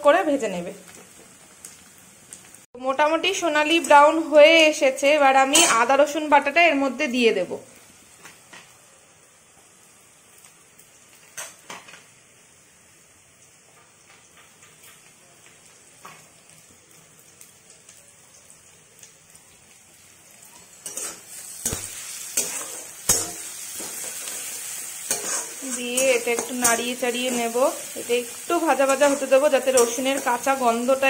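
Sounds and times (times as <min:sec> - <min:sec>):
onions sizzling in a pan: 0:00.0 - 0:31.0
spatula scraping and clatter: 0:20.8 - 0:26.8.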